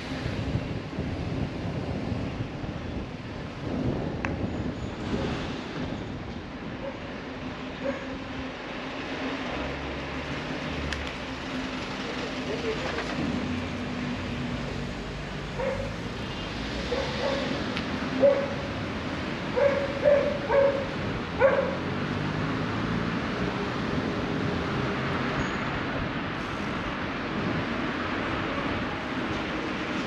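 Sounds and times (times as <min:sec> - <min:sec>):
street traffic: 0:00.0 - 0:30.0
dog barking: 0:15.6 - 0:16.0, 0:16.9 - 0:17.5, 0:18.2 - 0:18.6, 0:19.5 - 0:21.8.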